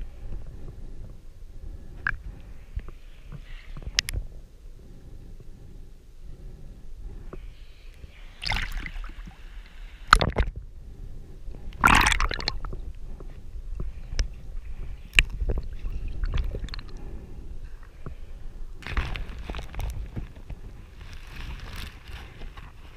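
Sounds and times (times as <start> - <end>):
underwater rumble of moving water: 0.0 - 22.9
gurgling water rushes: 8.4 - 9.4, 10.0 - 10.5, 11.8 - 12.8.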